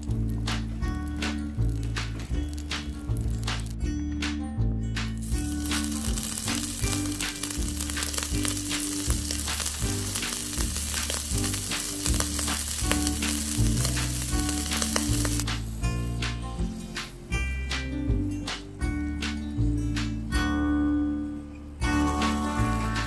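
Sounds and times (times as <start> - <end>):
meat sizzling in hot oil: 0.0 - 3.7, 5.2 - 15.9
background music: 0.0 - 23.0.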